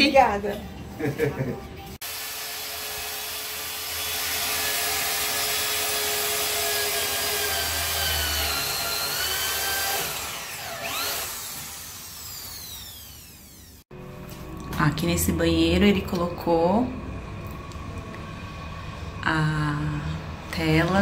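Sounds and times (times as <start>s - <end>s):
power drill on metal: 2.0s - 13.9s.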